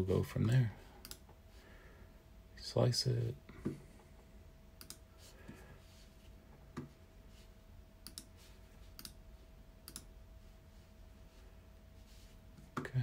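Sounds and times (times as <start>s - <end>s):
faint steady hum: 0.0s - 13.0s
computer mouse clicks: 1.0s - 1.3s, 4.8s - 5.0s, 8.0s - 8.3s, 8.9s - 9.2s, 9.8s - 10.1s.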